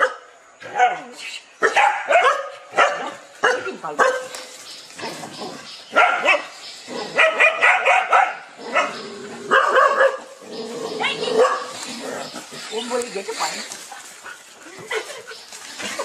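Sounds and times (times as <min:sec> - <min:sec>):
dogs barking: 0:00.0 - 0:13.5.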